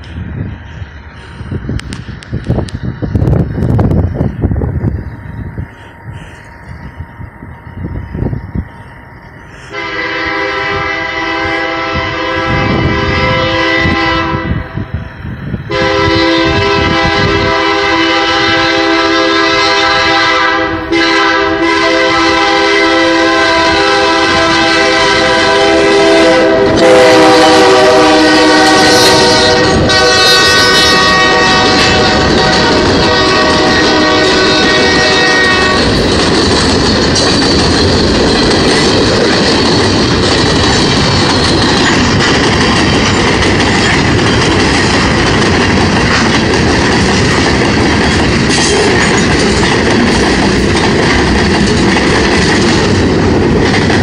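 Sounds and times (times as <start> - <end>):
train rumbling and rattling past: 0.0 - 54.0
locomotive air horn blasts: 9.5 - 14.8, 15.7 - 36.0.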